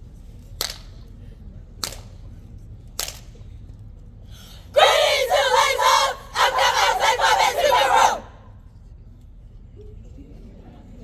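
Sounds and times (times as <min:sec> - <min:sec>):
group of voices shouting: 0:04.8 - 0:08.4.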